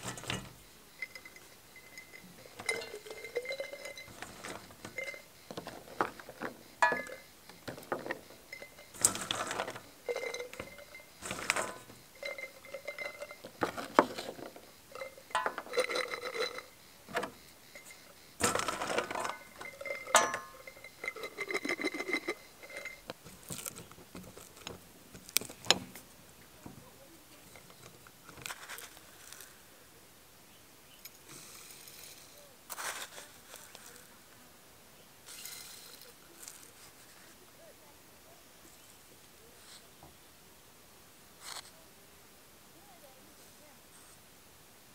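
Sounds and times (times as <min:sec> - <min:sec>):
glass jar ringing: 0:00.0 - 0:23.1
peppers clinking against glass jar: 0:00.0 - 0:23.8
rustling of peppers: 0:00.0 - 0:29.7, 0:31.4 - 0:34.4, 0:35.3 - 0:37.9.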